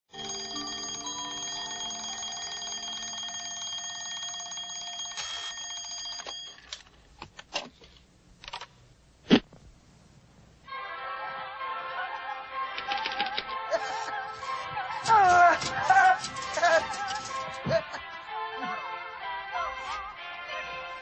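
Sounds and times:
alarm clock bell ringing: 0:00.1 - 0:06.7, 0:15.0 - 0:17.5.

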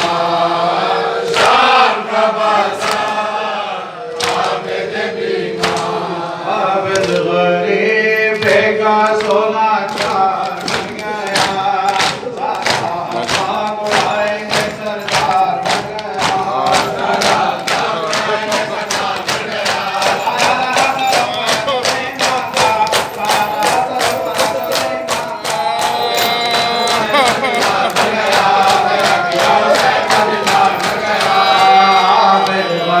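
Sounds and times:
men chanting in unison: 0:00.0 - 0:33.0
hands slapping chests: 0:04.1 - 0:04.7, 0:05.6 - 0:06.0, 0:06.9 - 0:07.3, 0:08.3 - 0:32.6.

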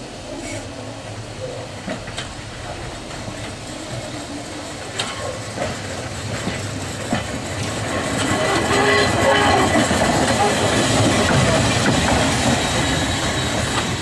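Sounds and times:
tram wheels clicking over points: 0:01.8 - 0:14.0.

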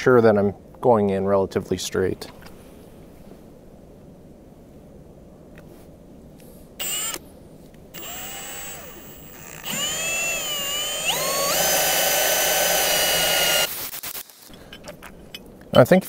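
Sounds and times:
drill boring into wood: 0:06.8 - 0:07.2, 0:08.0 - 0:14.1.

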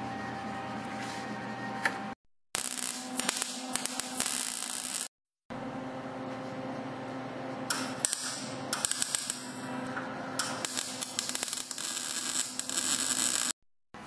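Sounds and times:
arc welder crackling and sizzling: 0:02.6 - 0:05.1, 0:07.7 - 0:13.6.

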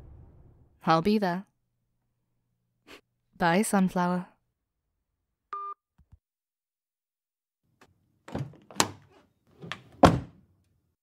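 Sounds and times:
door opening and shutting: 0:08.3 - 0:10.4.

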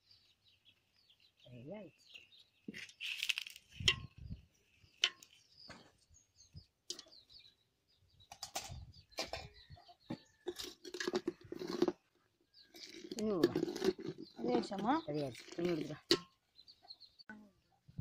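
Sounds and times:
high bird chirps: 0:14.1 - 0:17.4.

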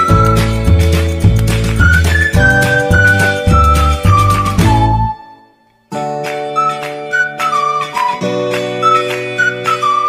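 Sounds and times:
background music: 0:00.0 - 0:10.0.

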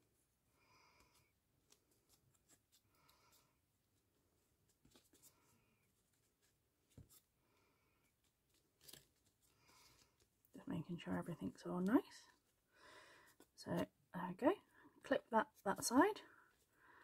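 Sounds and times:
ribbon rustling: 0:00.0 - 0:12.7.

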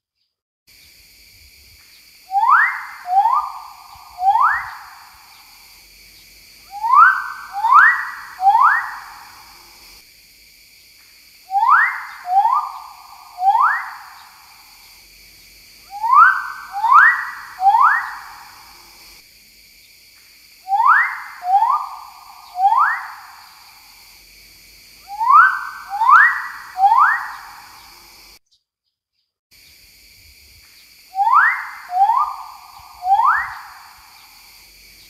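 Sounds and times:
bird whistled calls: 0:02.3 - 0:05.5, 0:06.7 - 0:09.3, 0:11.5 - 0:14.4, 0:15.9 - 0:18.5, 0:20.7 - 0:23.4, 0:25.1 - 0:28.0, 0:31.2 - 0:34.3.

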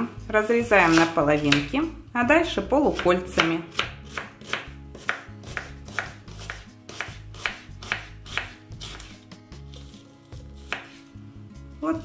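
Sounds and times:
soft background music: 0:00.0 - 0:12.0
knife cutting on wooden board: 0:00.7 - 0:01.8, 0:03.0 - 0:11.2.

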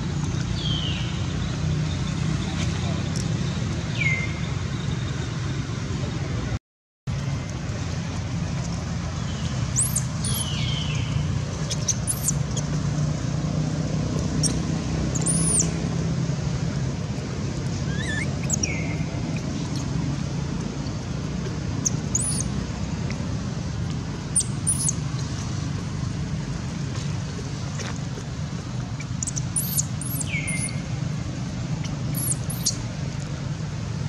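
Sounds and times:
road traffic rumble: 0:00.0 - 0:34.0
baby monkey squealing: 0:09.8 - 0:10.6, 0:11.6 - 0:12.6, 0:14.4 - 0:15.7, 0:17.8 - 0:19.9, 0:21.8 - 0:22.5, 0:24.4 - 0:25.0, 0:29.0 - 0:30.8, 0:31.8 - 0:32.8.

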